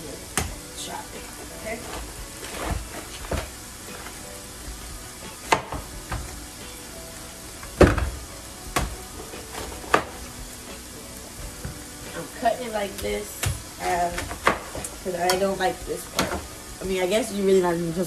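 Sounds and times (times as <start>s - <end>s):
bacon and onions sizzling: 0.0s - 18.0s.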